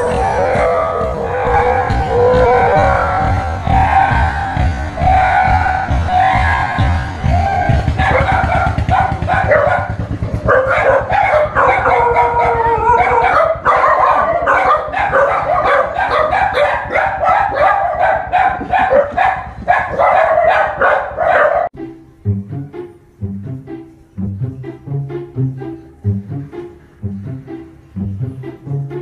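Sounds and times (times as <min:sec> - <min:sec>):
dog howling and yipping: 0:00.0 - 0:21.7
dog barking: 0:07.9 - 0:21.7.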